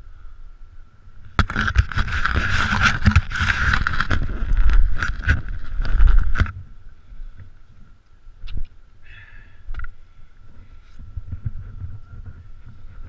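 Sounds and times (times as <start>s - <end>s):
wind rumbling on microphone: 0.0s - 13.0s
skis scraping on snow: 1.9s - 6.2s.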